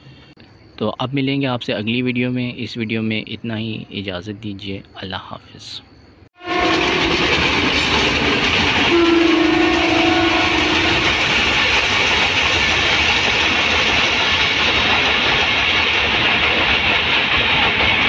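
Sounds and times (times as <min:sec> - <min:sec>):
train horn: 0:06.4 - 0:07.3, 0:08.8 - 0:11.5
passenger train passing: 0:06.4 - 0:18.0.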